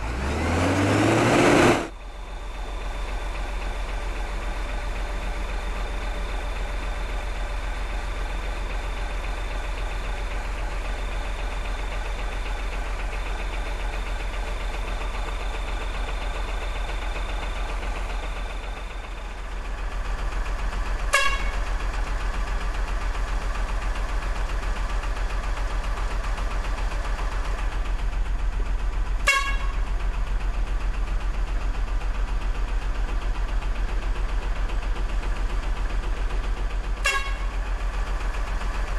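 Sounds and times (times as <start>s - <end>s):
engine-like drone: 0.0s - 38.9s
short sharp horn blip: 21.1s - 21.5s, 29.3s - 29.7s, 37.0s - 37.4s.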